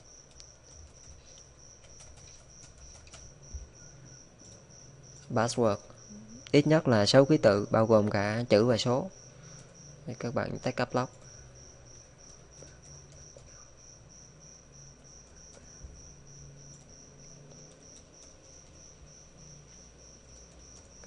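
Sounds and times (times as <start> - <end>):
keyboard clicks: 0.0 - 3.3, 4.4 - 4.6, 12.0 - 13.6, 16.6 - 18.9
low hum: 3.0 - 21.0
high-pitched pulsing tone: 6.0 - 6.6.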